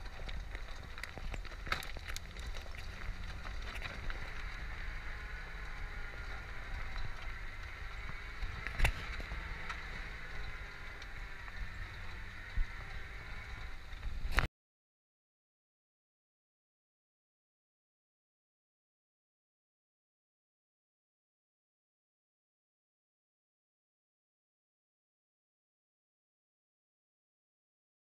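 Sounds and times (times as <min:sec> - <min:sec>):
vehicle engine rumble: 0:00.0 - 0:14.5.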